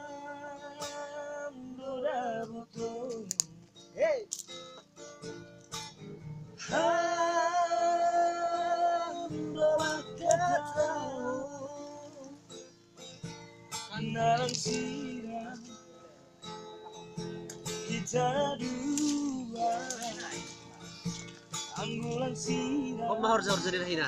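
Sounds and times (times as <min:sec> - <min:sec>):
person singing: 0:00.0 - 0:03.5, 0:06.6 - 0:12.4, 0:13.9 - 0:15.8, 0:17.8 - 0:20.7, 0:21.6 - 0:24.0
acoustic guitar strumming: 0:00.0 - 0:24.0.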